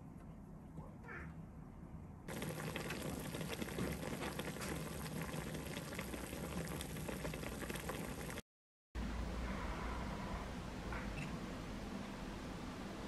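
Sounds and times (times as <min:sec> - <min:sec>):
broth bubbling in a pot: 0:02.3 - 0:08.4.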